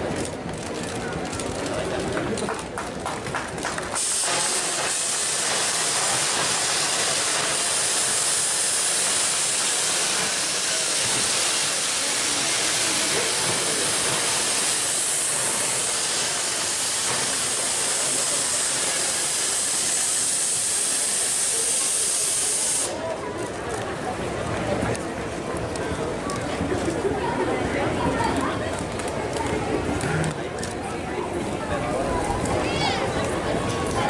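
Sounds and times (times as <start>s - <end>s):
loud steady hiss: 3.9s - 23.1s.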